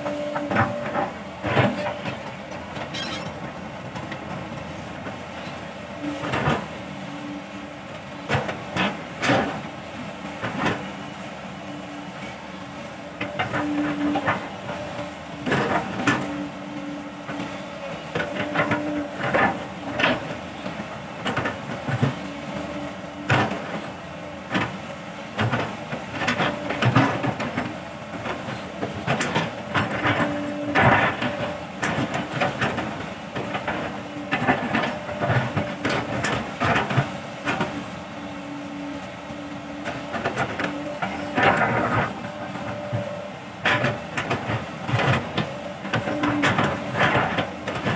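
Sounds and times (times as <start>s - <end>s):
hydraulic whine: 0.0s - 3.6s
excavator diesel engine under load: 0.0s - 47.9s
bucket clanking and scraping soil: 39.6s - 47.9s.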